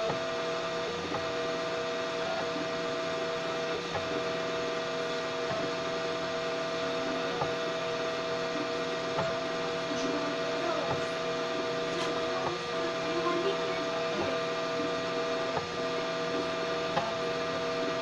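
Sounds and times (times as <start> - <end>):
stepper motors whining: 0.0 - 18.0.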